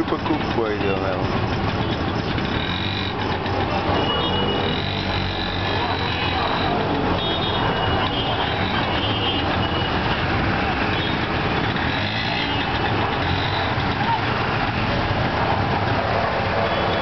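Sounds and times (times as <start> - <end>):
rickshaw engines humming: 0.0 - 17.0
road noise: 0.0 - 17.0.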